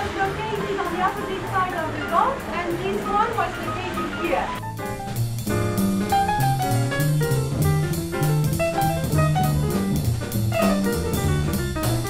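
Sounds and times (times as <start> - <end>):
bass line: 0.0 - 12.0
drum kit steady beat: 0.0 - 12.0.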